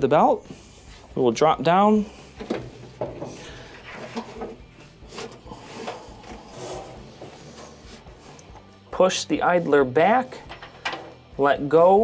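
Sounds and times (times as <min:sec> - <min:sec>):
light knocks clicks and scrapes: 0:02.4 - 0:06.4.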